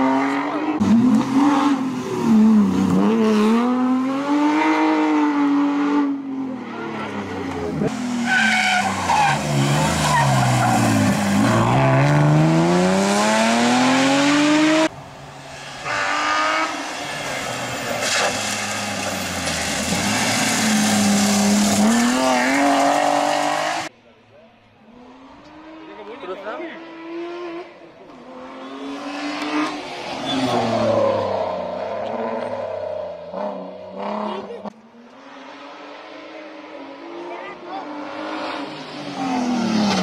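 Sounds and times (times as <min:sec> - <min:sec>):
rally car engines revving: 0:00.0 - 0:23.9, 0:24.8 - 0:40.0
tyres squealing: 0:08.2 - 0:12.0.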